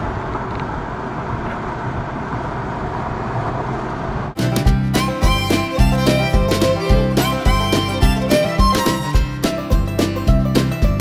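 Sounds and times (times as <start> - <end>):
country music with strings: 4.4 - 11.0.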